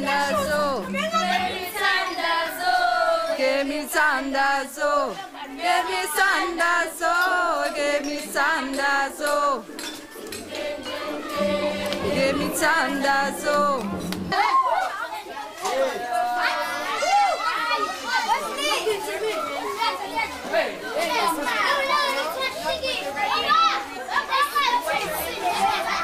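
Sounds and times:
girls and women singing together: 0.0s - 14.8s.

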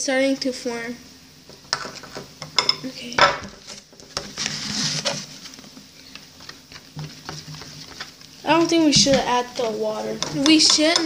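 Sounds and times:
slime rustling: 3.5s - 10.6s.

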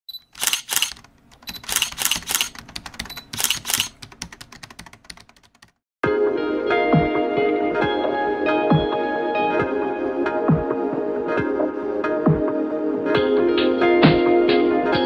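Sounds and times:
rapid clicks: 0.3s - 5.8s.

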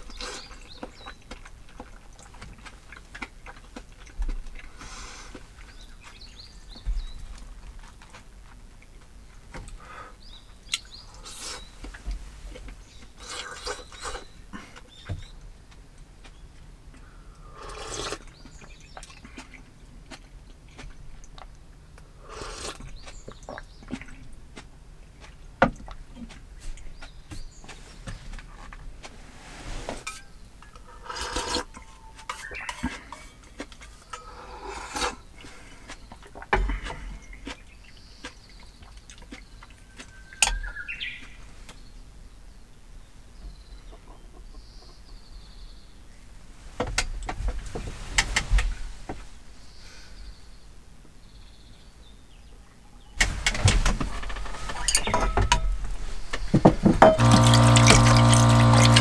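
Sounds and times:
bowls rinsed under running tap: 56.9s - 59.0s
ceramic bowls and chopsticks clinking: 57.0s - 59.0s
electric water pump humming: 57.0s - 59.0s.

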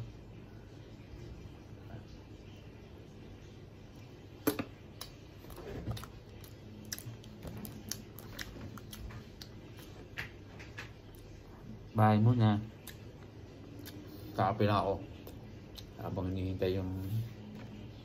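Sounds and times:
person chewing bread: 4.9s - 11.6s, 12.8s - 14.4s.

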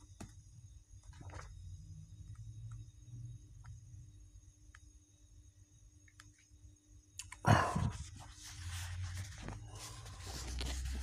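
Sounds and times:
paper rustling: 7.9s - 11.0s
paper pages turning: 8.0s - 11.0s.

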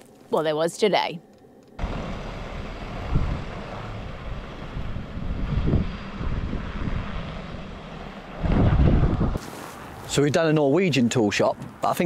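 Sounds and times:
distant van engine and tyres: 1.4s - 12.0s
wind rumbling on microphone: 1.8s - 10.2s.

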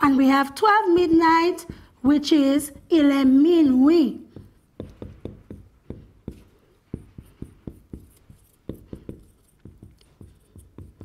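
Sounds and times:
marker writing on whiteboard: 4.2s - 11.0s.

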